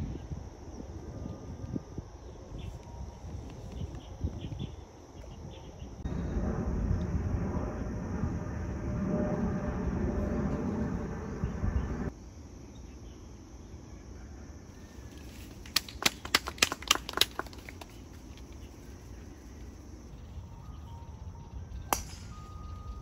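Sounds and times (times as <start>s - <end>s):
sharp snaps: 15.5s - 18.1s
golf club striking ball: 21.9s - 22.4s.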